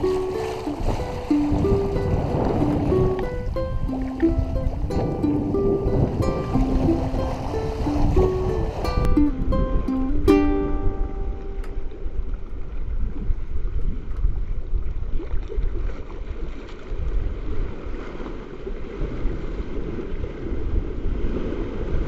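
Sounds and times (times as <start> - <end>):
ukulele note: 0.0 - 12.8
water rushing along hull: 0.0 - 22.0
wind buffeting microphone: 0.0 - 22.0.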